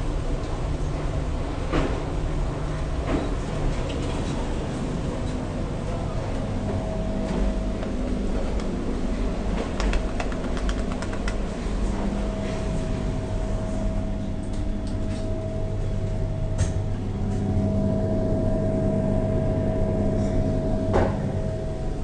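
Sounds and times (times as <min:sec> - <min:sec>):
elevator mechanical hum: 0:00.0 - 0:22.0
elevator whine: 0:00.0 - 0:22.0
sharp clicks: 0:09.8 - 0:11.4.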